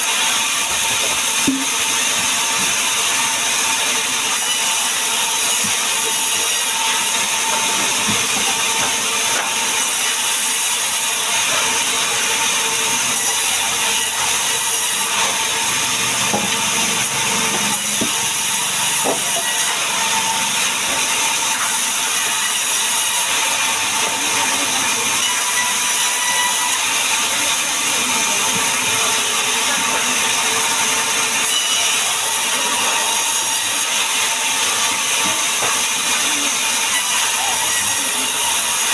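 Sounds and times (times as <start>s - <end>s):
band saw ripping logs: 0.0s - 27.7s.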